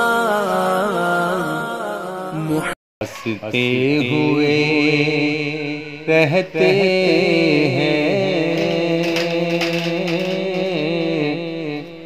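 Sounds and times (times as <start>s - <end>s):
man singing solo: 2.4s - 12.0s.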